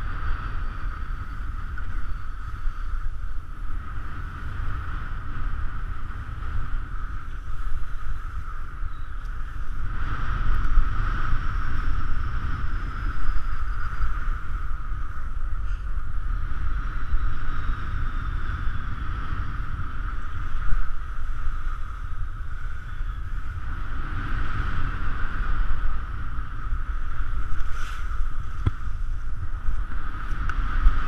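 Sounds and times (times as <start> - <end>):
wind buffeting microphone: 0.0 - 31.0
skis sliding through snow: 27.4 - 29.1.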